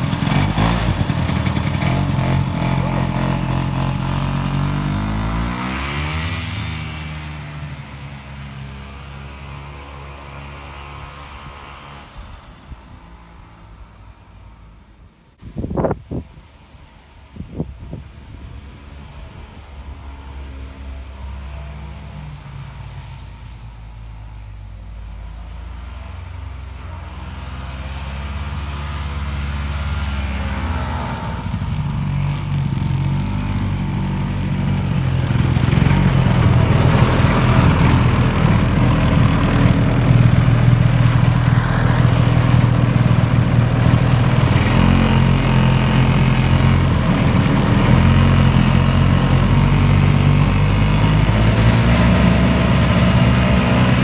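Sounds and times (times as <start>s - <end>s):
snowmobile engine running: 0.0s - 9.5s, 26.7s - 54.0s.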